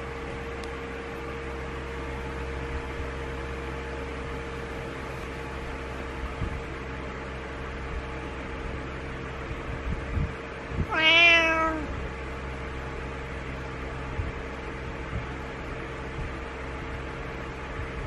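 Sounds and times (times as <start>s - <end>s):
steady low hum: 0.0s - 18.0s
cat meowing: 10.8s - 12.0s.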